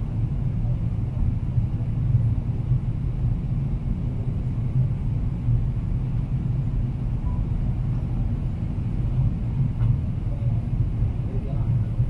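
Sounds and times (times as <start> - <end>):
airplane cabin rumble: 0.0 - 12.0.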